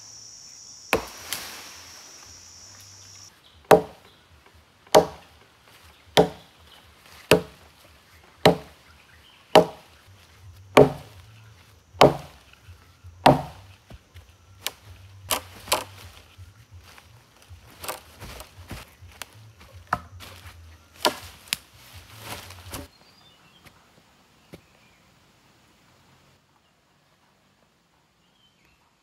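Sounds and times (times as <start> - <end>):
axe chopping into tree trunk: 0.9 - 1.5, 3.7 - 4.1, 4.9 - 5.3, 6.1 - 6.5, 7.2 - 7.6, 8.4 - 8.8, 9.5 - 10.0, 10.7 - 11.2, 12.0 - 12.5, 13.2 - 13.7, 14.6 - 16.0, 17.7 - 20.4, 21.0 - 21.6.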